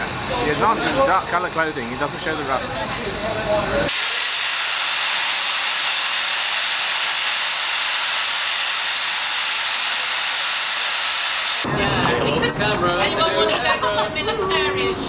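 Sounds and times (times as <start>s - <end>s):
escaping steam hissing: 0.0s - 11.7s.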